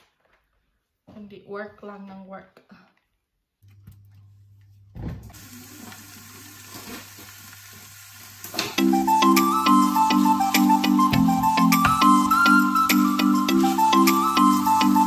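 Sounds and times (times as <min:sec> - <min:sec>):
meat sizzling in oil: 0:05.4 - 0:11.1, 0:12.2 - 0:15.0
background music with beat: 0:08.8 - 0:15.0.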